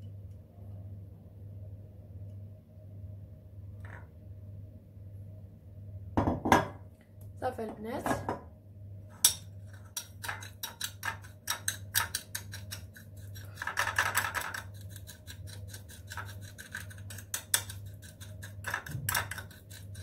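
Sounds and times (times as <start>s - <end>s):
teaspoon scraping glass dish: 9.2s - 20.0s.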